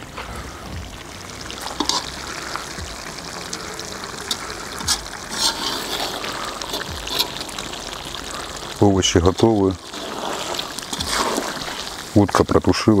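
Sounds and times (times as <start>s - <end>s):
food sizzling and bubbling: 0.0s - 13.0s
metal spoon scraping and stirring: 1.7s - 2.1s, 4.3s - 7.7s, 9.8s - 12.0s.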